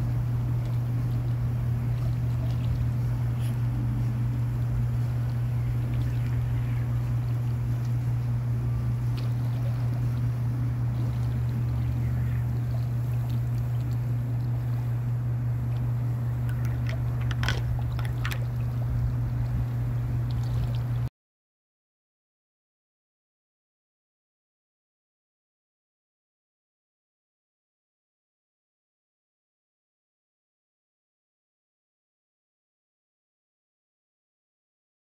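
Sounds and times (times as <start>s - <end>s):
steady low hum: 0.0s - 21.1s.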